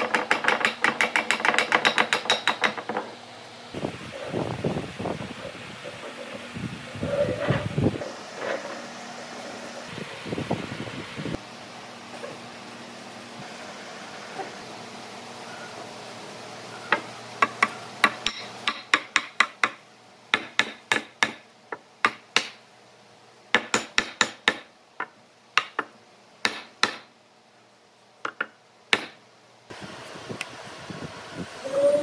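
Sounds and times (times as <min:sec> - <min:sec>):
wooden mallet tapping wood: 0:00.1 - 0:03.1, 0:20.4 - 0:22.6, 0:23.6 - 0:27.1, 0:28.2 - 0:29.2.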